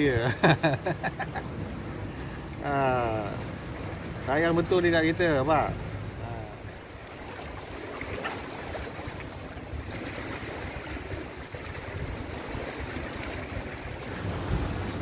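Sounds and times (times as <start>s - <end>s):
small waves washing: 0.0s - 15.0s
wind noise on microphone: 9.7s - 15.0s.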